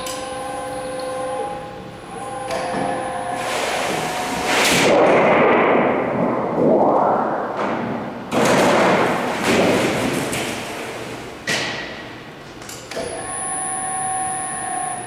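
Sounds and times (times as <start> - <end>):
sheet metal wobbling and rattling: 4.7 - 11.1.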